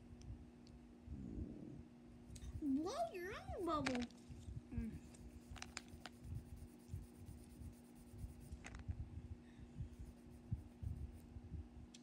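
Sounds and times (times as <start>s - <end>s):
steady low hum: 0.0s - 12.0s
rubbing on microphone: 2.4s - 9.2s, 9.8s - 11.6s.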